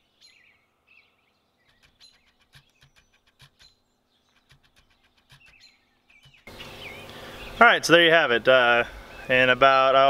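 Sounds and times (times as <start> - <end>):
short ticks and chirps: 1.6 - 7.2.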